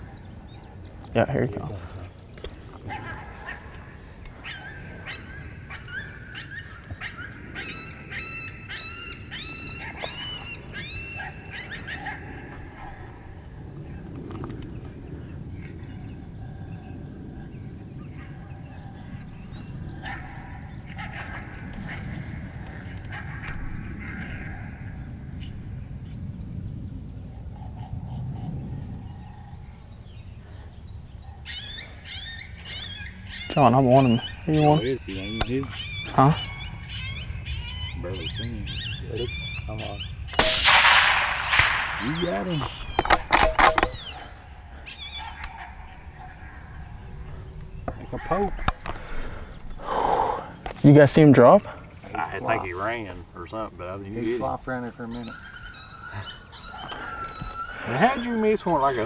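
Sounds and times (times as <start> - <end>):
wind rumble on microphone: 0.0 - 40.4
faint bird chirps: 41.1 - 48.8, 51.8 - 59.0
predator call yelping: 41.4 - 47.1.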